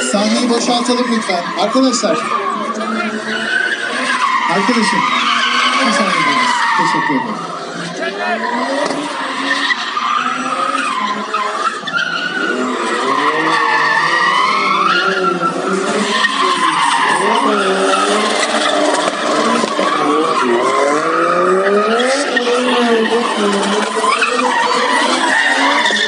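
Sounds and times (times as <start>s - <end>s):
car engines revving: 0.0s - 26.0s
tyres squealing on asphalt: 0.0s - 26.0s.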